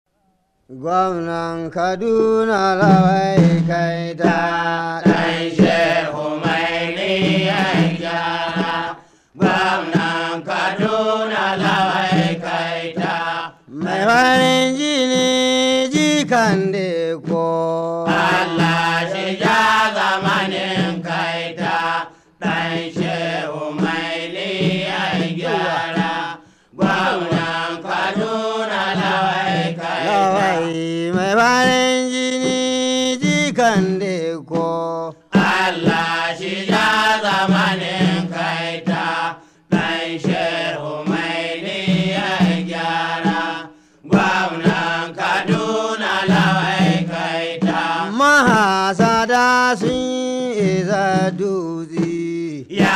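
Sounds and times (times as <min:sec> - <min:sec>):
man chanting a melody: 0:00.7 - 0:06.0, 0:25.4 - 0:26.0, 0:26.8 - 0:27.5, 0:29.8 - 0:35.2.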